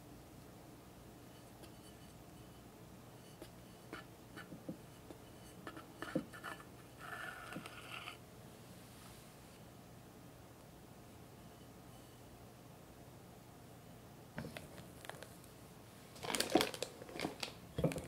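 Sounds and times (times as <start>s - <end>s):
palette knife scraping cream: 5.6s - 8.2s.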